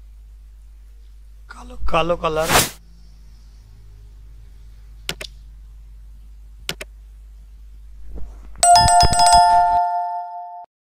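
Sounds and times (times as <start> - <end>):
mouse clicks: 5.1 - 5.4, 6.7 - 6.9
bell ringing: 8.6 - 10.7.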